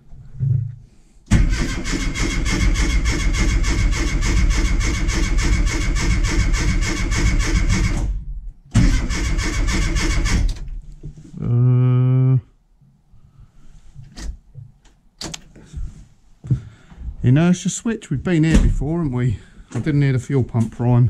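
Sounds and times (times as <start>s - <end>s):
engine cranking on starter motor: 1.3s - 10.8s.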